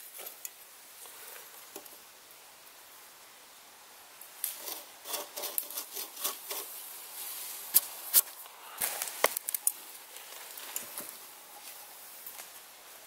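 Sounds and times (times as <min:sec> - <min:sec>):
pencil scratching on wood: 0:04.6 - 0:06.7.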